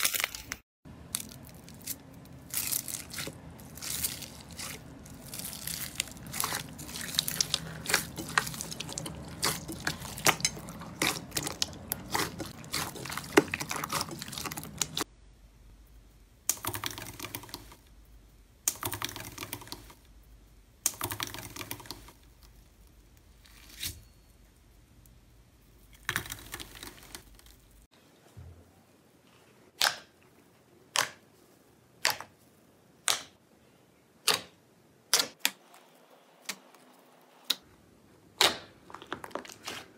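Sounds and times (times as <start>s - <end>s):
foil crinkling under press: 0.0s - 15.0s
hand squishing beaded slime: 1.1s - 15.1s.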